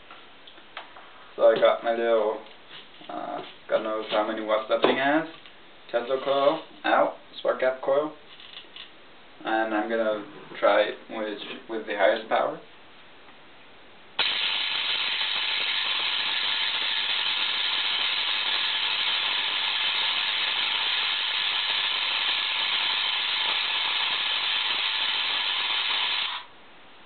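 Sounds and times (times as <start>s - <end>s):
tesla coil spark gap buzzing: 14.2s - 26.5s.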